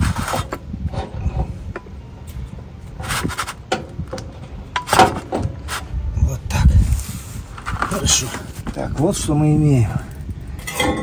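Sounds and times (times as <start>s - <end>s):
metal clinks and knocks: 10.6s - 11.0s.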